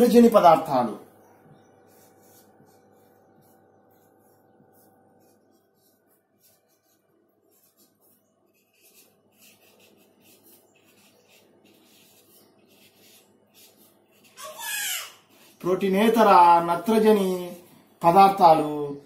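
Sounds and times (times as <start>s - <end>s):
steady low hum: 0.0s - 14.4s
marker squeaking on whiteboard: 1.6s - 15.6s.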